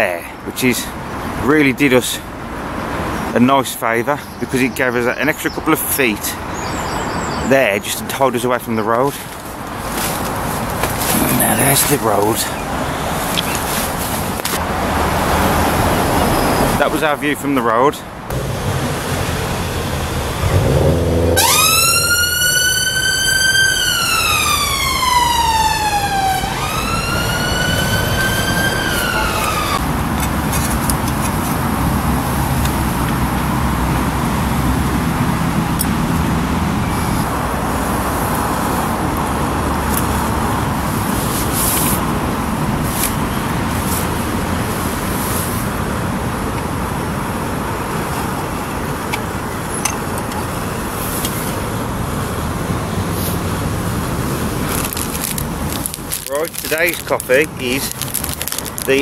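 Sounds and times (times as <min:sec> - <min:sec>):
road traffic noise: 0:00.0 - 0:59.0
ambulance siren wailing: 0:18.9 - 0:29.8.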